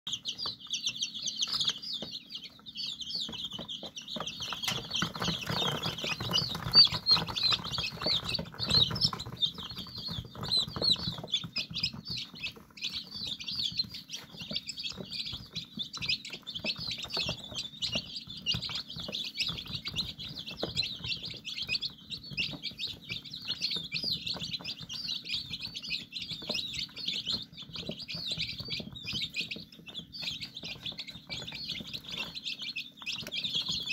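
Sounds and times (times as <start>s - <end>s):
chicks peeping: 0.1s - 33.9s.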